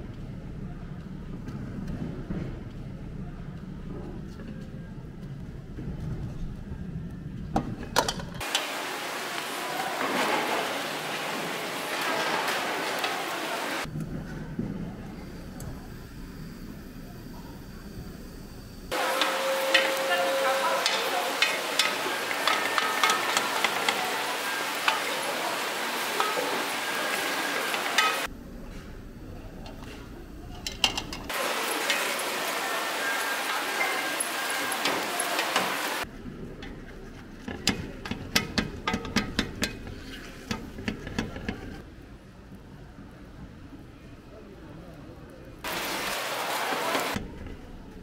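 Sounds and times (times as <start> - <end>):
rice sizzling in a hot pot: 8.4 - 13.9, 18.9 - 28.3, 30.9 - 36.1, 45.6 - 47.2
rice paddle pressing rice: 37.4 - 41.8.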